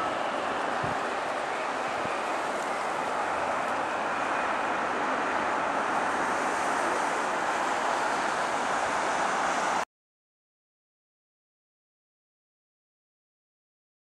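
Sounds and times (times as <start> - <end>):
jet engines rushing: 0.0 - 9.8.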